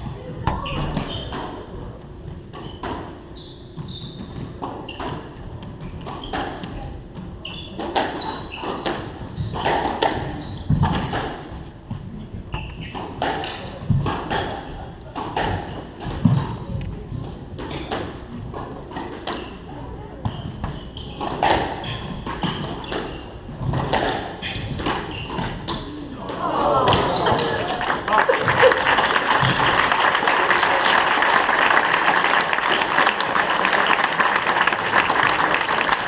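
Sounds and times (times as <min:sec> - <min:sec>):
shoe squeaks: 0:00.5 - 0:01.6, 0:02.6 - 0:11.8, 0:12.5 - 0:13.6, 0:17.7 - 0:19.7, 0:20.3 - 0:23.5, 0:24.4 - 0:26.0
squash ball hitting rackets and walls: 0:03.8 - 0:12.0, 0:12.8 - 0:19.6, 0:20.2 - 0:27.2.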